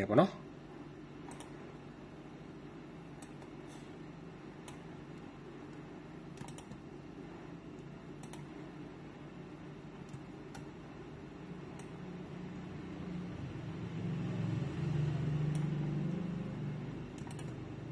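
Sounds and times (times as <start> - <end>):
steady low hum: 0.0 - 17.9
computer mouse clicks: 1.3 - 1.5, 4.6 - 6.8, 7.8 - 8.5, 11.7 - 12.0, 17.1 - 17.6.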